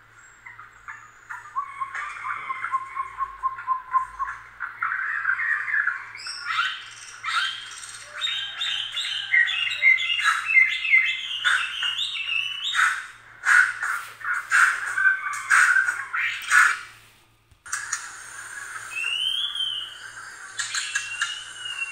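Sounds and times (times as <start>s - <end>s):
sharp clicks: 17.5s - 18.4s, 20.4s - 21.9s
rapid high-pitched chirps: 17.7s - 21.9s.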